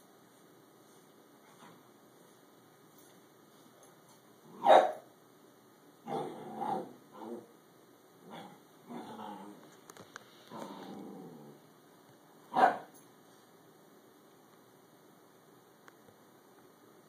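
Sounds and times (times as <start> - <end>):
dogs growling: 6.0 - 7.5, 8.2 - 9.7, 10.5 - 11.7.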